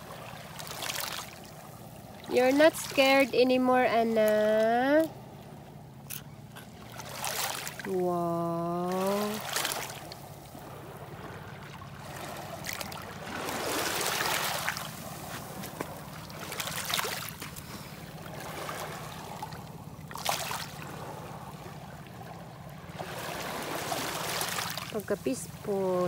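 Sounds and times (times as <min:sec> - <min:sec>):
water splash: 0:06.9 - 0:08.1, 0:08.8 - 0:10.2, 0:11.6 - 0:17.6, 0:20.1 - 0:21.0, 0:23.0 - 0:25.1
waves washing over pebbles: 0:12.0 - 0:17.5, 0:23.0 - 0:26.0.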